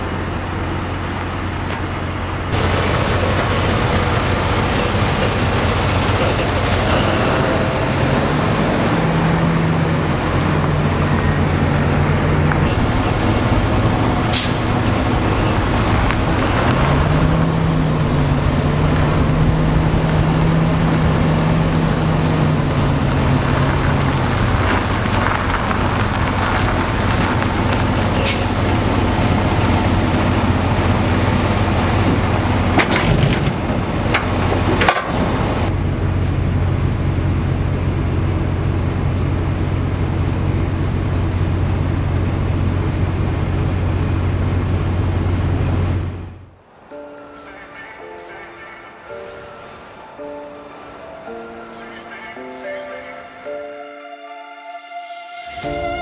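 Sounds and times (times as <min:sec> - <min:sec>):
truck diesel engine running: 0:00.0 - 0:52.4
air brake hiss: 0:14.3 - 0:14.8.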